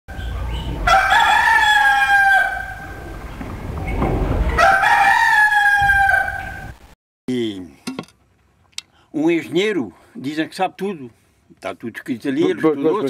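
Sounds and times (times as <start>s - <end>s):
rooster crowing: 0.5s - 3.2s, 4.5s - 6.8s.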